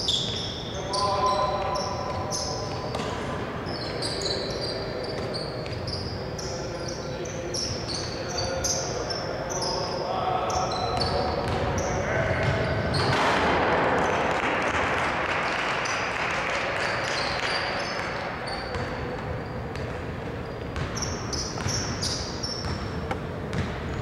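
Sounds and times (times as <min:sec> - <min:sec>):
sneaker squeaks: 0:00.0 - 0:13.3, 0:17.0 - 0:24.0
rush of hall noise: 0:00.0 - 0:24.0
basketball bouncing: 0:18.7 - 0:24.0.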